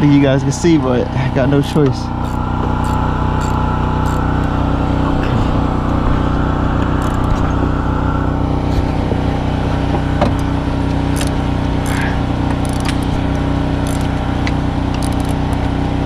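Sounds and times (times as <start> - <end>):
motor humming steadily: 0.0 - 16.0.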